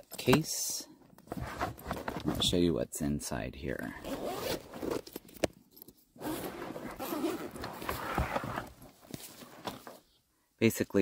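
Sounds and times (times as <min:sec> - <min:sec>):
zipper pulled open: 0:04.0 - 0:05.2, 0:06.2 - 0:08.8.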